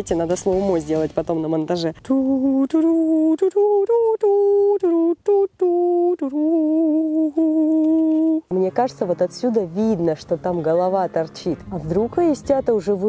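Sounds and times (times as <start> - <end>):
person humming slow melody: 2.0 - 8.8.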